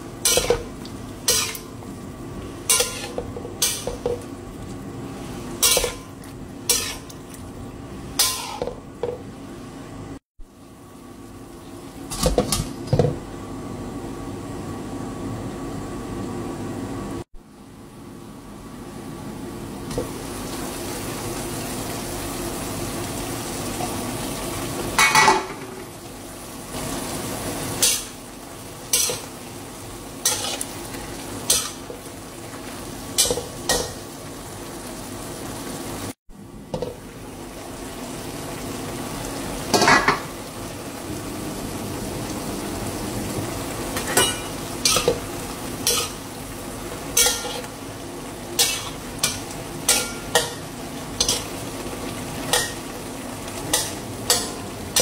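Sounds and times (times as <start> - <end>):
food sizzling in a pan: 0.0 - 9.7, 19.6 - 55.0
utensil scraping a pan: 2.7 - 4.0.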